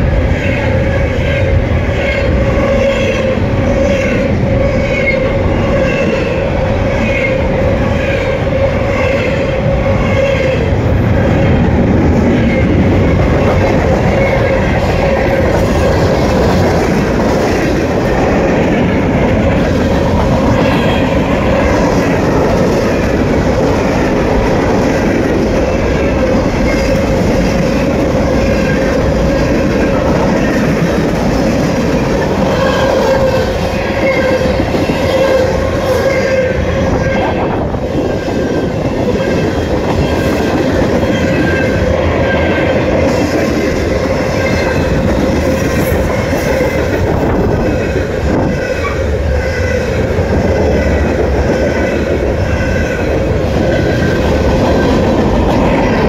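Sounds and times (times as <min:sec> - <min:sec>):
freight train wheels clattering: 0:00.0 - 0:56.0.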